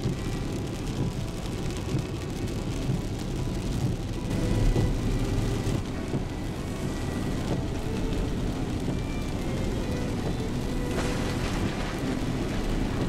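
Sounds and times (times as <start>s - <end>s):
car engine and tyre rumble: 0.0s - 13.0s
rain hissing on car: 0.0s - 13.0s.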